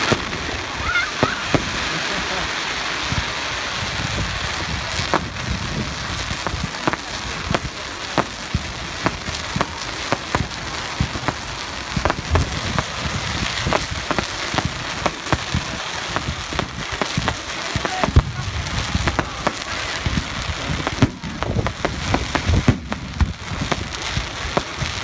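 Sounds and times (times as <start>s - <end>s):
firework bangs: 0.0s - 25.0s.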